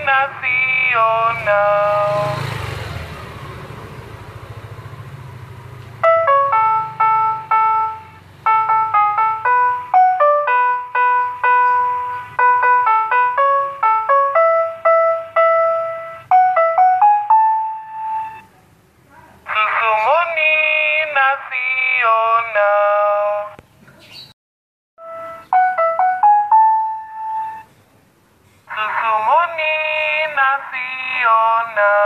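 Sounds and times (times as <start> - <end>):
vendor cart jingle tune: 0.0 - 2.6, 5.9 - 18.5, 25.0 - 27.7.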